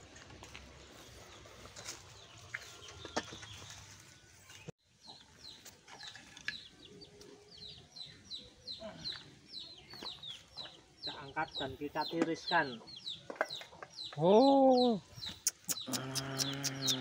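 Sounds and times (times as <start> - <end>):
chicks peeping: 6.5 - 14.1, 15.2 - 17.0.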